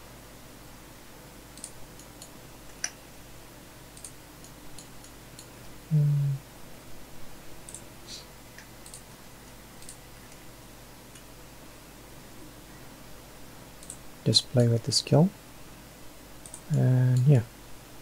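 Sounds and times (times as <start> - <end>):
mouse and keyboard clicks: 1.6 - 3.0, 9.8 - 10.4.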